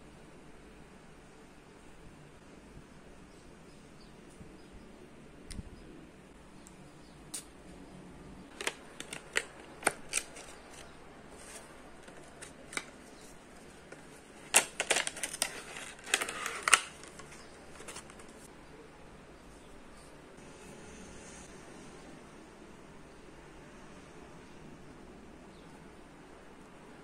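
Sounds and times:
clicks and scrapes of plastic and card: 8.5 - 18.5.

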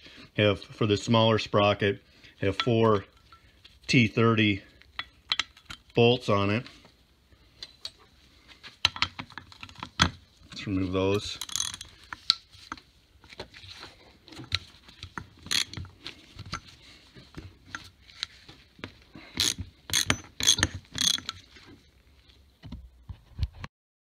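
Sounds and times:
ratchet clicking: 11.4 - 11.9, 15.4 - 15.8, 19.4 - 21.4.

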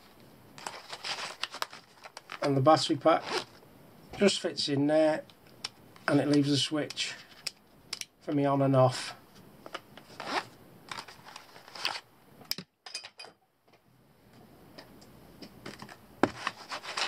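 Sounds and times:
zip being pulled shut: 3.2 - 3.6.

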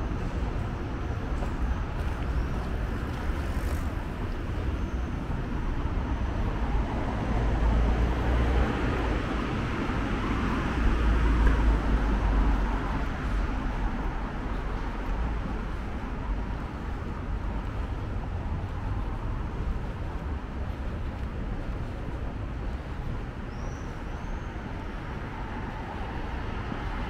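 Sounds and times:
road traffic: 0.0 - 27.0.

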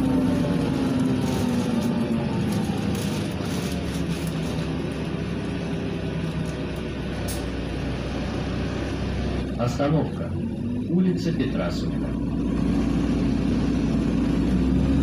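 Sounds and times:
tyre and road noise: 0.0 - 10.4
bus engine hum: 0.0 - 15.0.

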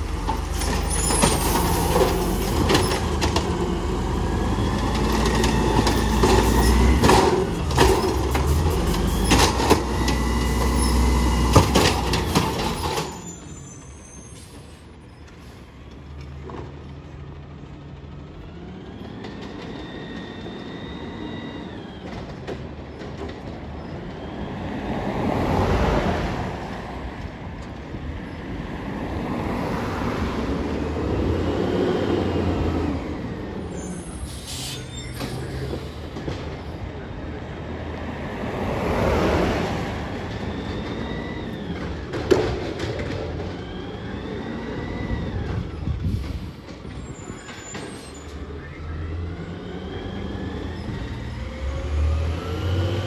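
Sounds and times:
garbage truck diesel engine revving: 0.0 - 13.0, 39.6 - 46.6, 48.3 - 53.0
cart and arm clanking: 0.0 - 14.2, 40.1 - 48.9
distant garbage truck engine whine: 0.0 - 53.0.

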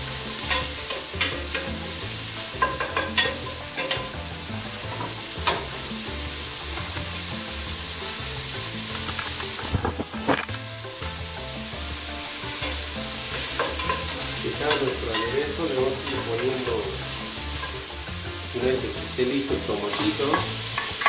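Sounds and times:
onions sizzling in hot oil: 0.0 - 21.0
wooden spoon knocking on pot: 2.6 - 4.2, 13.4 - 15.4.

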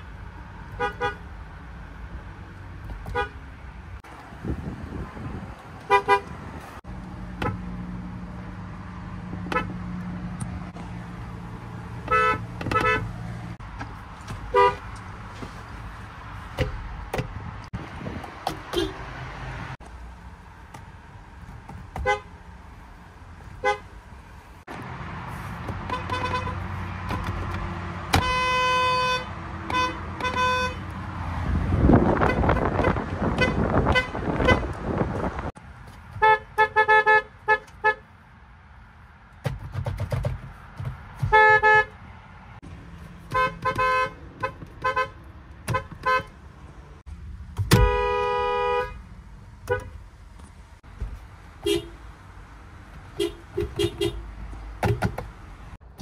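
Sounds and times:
car horns tooting: 0.7 - 1.3, 3.0 - 3.4, 5.9 - 6.4, 12.0 - 13.1, 14.5 - 14.9, 18.6 - 19.1, 22.0 - 22.3, 23.6 - 23.9, 25.8 - 27.0, 28.0 - 30.9, 32.0 - 34.8, 36.2 - 38.1, 41.2 - 42.0, 43.3 - 46.4, 47.6 - 49.0, 51.6 - 52.0, 53.1 - 55.1.

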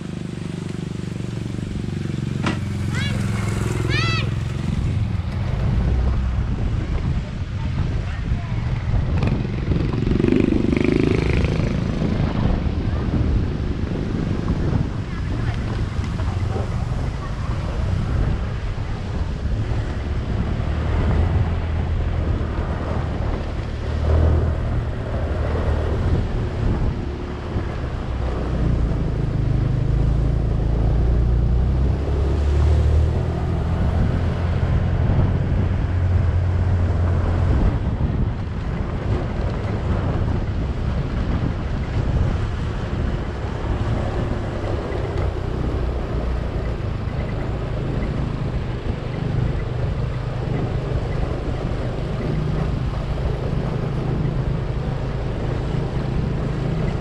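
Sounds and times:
small motorcycle engine: 0.0 - 5.2
wind rumbling on microphone: 0.0 - 57.0.

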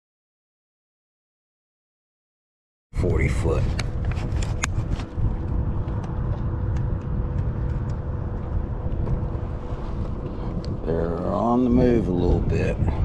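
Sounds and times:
boat motor rumbling: 3.0 - 13.0
faint steady whine: 3.0 - 13.0
wind on microphone: 3.0 - 13.0.

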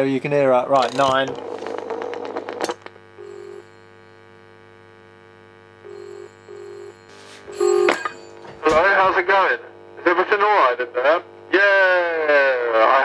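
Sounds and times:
telephone ringing tone: 1.4 - 4.4, 5.8 - 8.7
steady slight hum: 3.0 - 11.5.

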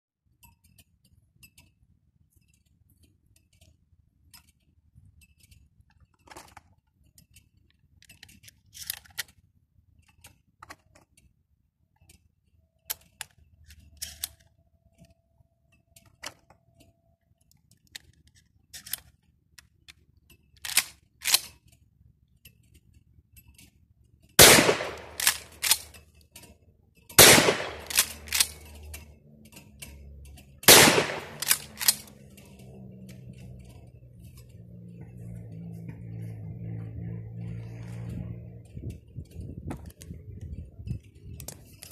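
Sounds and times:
metallic clicks of gun handling: 3.3 - 11.3, 12.0 - 23.8, 24.4 - 34.5
loud shotgun shots: 24.4 - 25.9, 27.2 - 28.6, 30.6 - 32.1.

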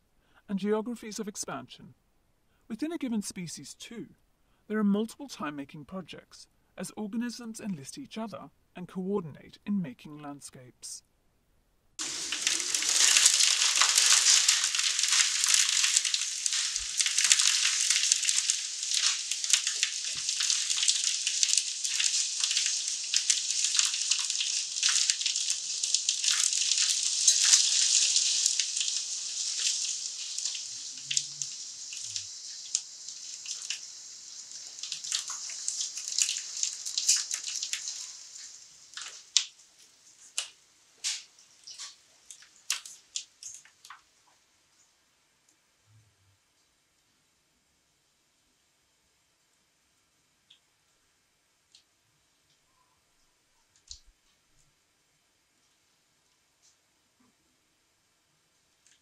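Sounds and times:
rain falling: 12.0 - 44.1.

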